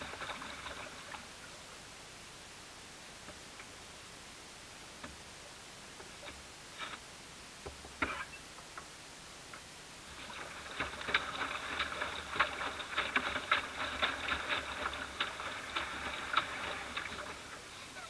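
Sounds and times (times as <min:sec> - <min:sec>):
ripples lapping against boat hull: 0:00.0 - 0:01.5, 0:10.0 - 0:18.0.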